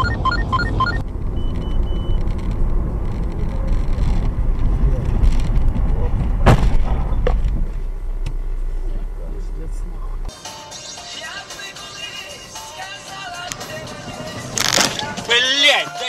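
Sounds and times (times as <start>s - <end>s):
short electronic beeps: 0.0s - 2.2s
engine and road rumble in car: 0.0s - 10.3s
loud car crash: 6.4s - 7.5s.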